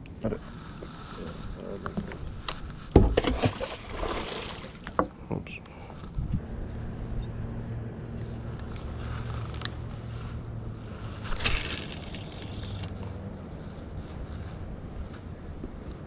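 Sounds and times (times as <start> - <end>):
low motor hum: 6.1 - 16.0.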